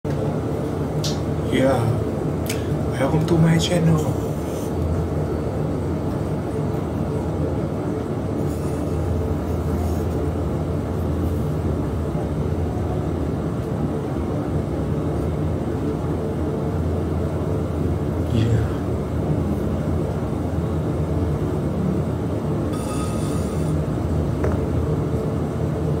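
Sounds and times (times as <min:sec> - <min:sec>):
potter's wheel humming: 0:00.1 - 0:26.0.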